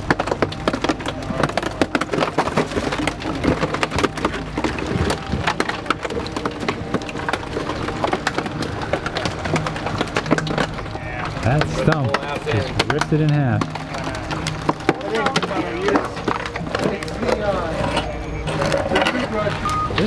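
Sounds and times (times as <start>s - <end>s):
wood crackling and snapping: 0.0s - 20.0s.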